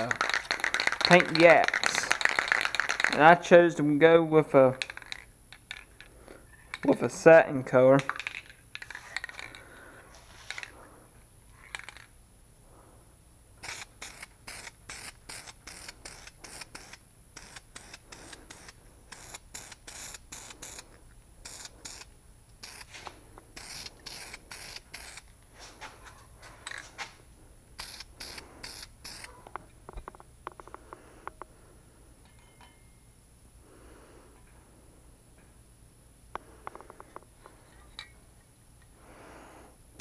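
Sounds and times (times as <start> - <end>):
aerosol spray bursts: 13.6 - 20.8, 21.5 - 25.2, 27.8 - 29.3.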